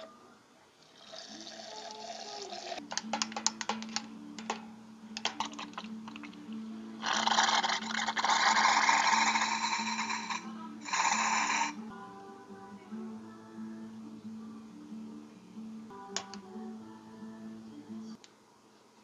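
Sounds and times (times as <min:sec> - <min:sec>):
carbonated water hissing into glass: 0:07.0 - 0:11.8.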